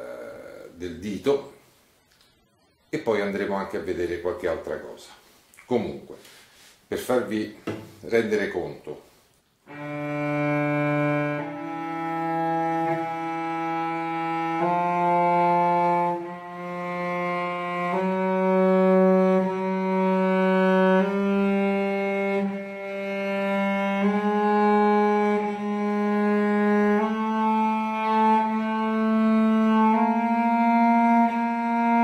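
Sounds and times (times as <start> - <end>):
cello long bow strokes: 9.7 - 32.0.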